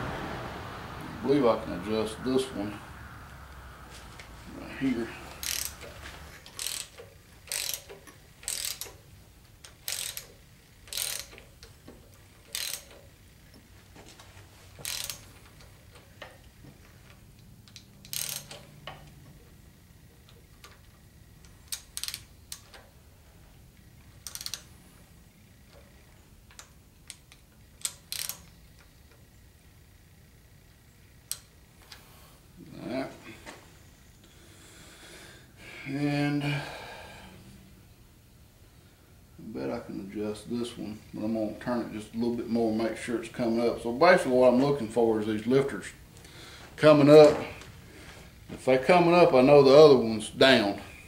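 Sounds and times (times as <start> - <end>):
hand ratchet clicking: 5.2 - 13.6, 14.7 - 19.2, 20.2 - 23.0, 23.8 - 24.8, 25.6 - 29.2.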